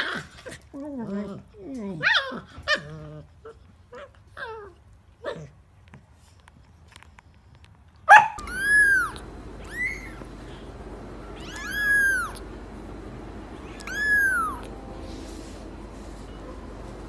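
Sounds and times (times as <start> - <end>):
cat meowing: 8.3 - 10.2, 11.2 - 12.4, 13.6 - 14.7.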